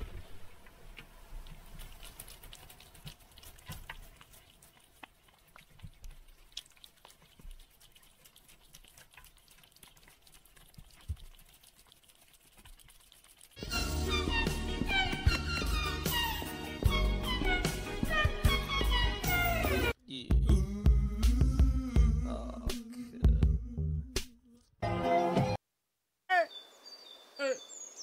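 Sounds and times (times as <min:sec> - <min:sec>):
cats licking and chewing: 0:00.9 - 0:14.3.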